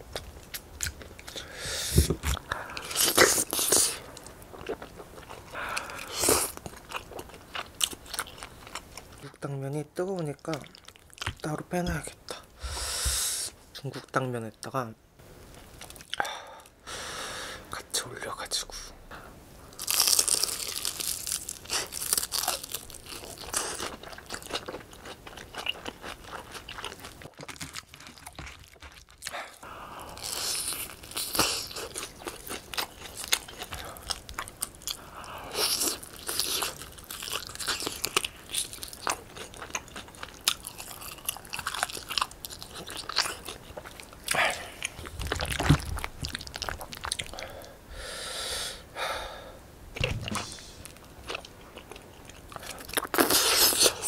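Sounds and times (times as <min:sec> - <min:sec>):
crunching bites of fried chicken: 0:19.8 - 0:44.4, 0:52.6 - 0:54.0
wet chewing: 0:19.8 - 0:47.8.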